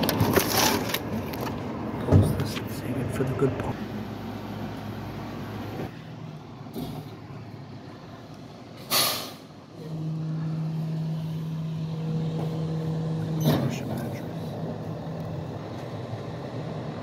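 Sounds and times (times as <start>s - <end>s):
air brakes hissing: 8.8s - 9.5s
truck diesel engine running: 9.6s - 17.0s.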